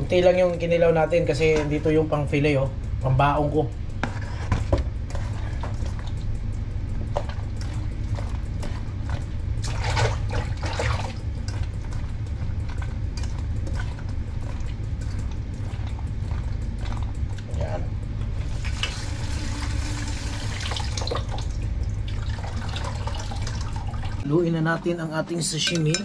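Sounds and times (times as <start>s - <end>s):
low hum: 0.0s - 26.0s
wet squelching and sloshing: 5.0s - 24.3s.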